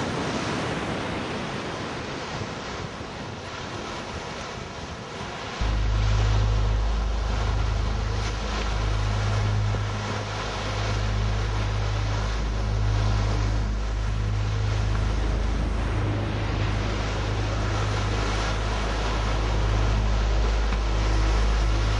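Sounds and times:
wind buffeting microphone: 0.0s - 21.9s.

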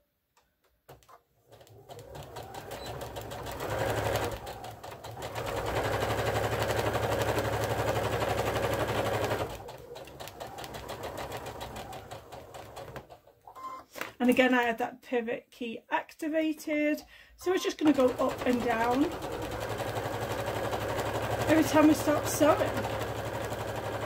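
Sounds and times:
sewing machine stitching: 0.9s - 13.4s, 17.6s - 24.0s.

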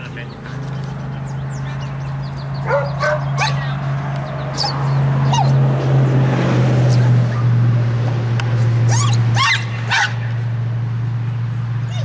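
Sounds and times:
dog yipping and barking: 2.6s - 3.7s, 4.6s - 5.6s, 6.9s - 7.5s, 8.9s - 10.2s
dog yelp: 2.6s - 3.8s, 4.6s - 5.6s, 8.9s - 10.2s.

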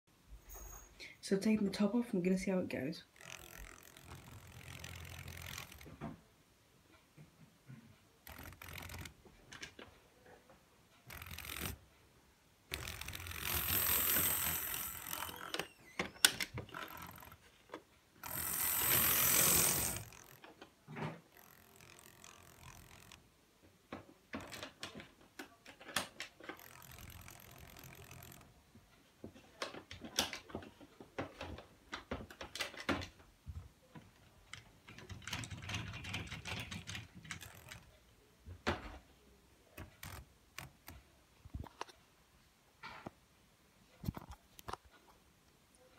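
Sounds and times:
mechanism clicks and rattles: 3.0s - 6.0s, 8.2s - 10.0s, 11.0s - 11.9s, 12.7s - 23.3s, 23.9s - 28.6s, 29.4s - 33.3s, 34.0s - 38.0s, 39.8s - 42.0s
model locomotive motor whirring: 3.2s - 5.9s, 8.2s - 9.1s, 11.1s - 11.8s, 12.7s - 15.6s, 18.2s - 20.4s, 21.3s - 23.2s, 26.5s - 28.5s.

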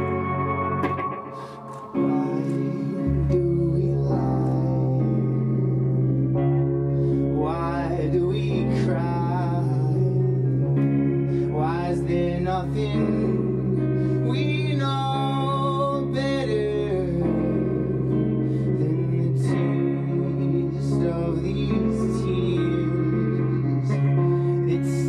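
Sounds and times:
wavering melodic line: 0.0s - 6.5s, 11.6s - 25.0s
low drone: 0.0s - 14.7s, 16.8s - 25.0s
electric guitar: 0.0s - 25.0s
synthesizer chords: 0.0s - 25.0s.

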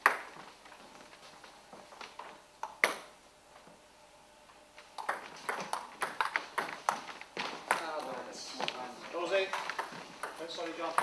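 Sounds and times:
table tennis ball knocks: 5.0s - 7.9s.

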